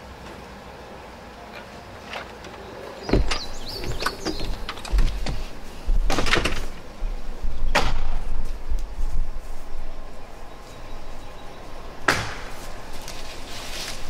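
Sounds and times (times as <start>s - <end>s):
wind rumbling on microphone: 3.1s - 13.6s
axe chopping wood: 12.1s - 12.5s.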